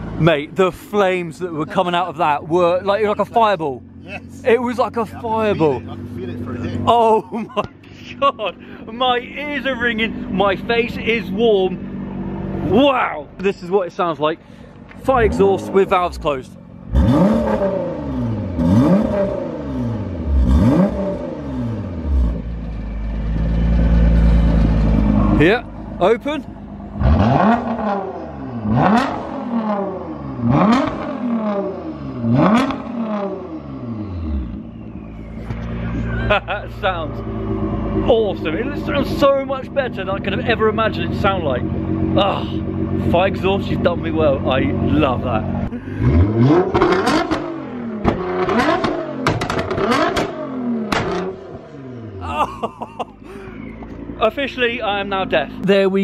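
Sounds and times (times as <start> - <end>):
car engine revving: 0.0 - 55.6
car engine idling: 0.0 - 56.0
exhaust pops and bangs: 46.6 - 51.4.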